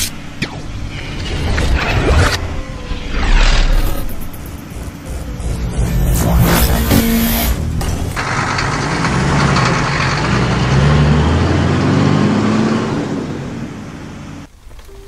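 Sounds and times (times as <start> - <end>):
heavy truck engine revving: 3.3 - 14.5
rapid mechanical clatter: 4.1 - 11.1.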